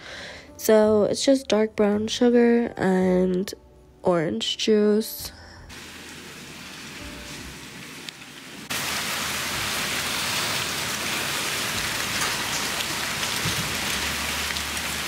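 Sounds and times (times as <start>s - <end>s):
steady rain falling: 5.8s - 15.0s
sliding glass door opening: 11.4s - 15.0s.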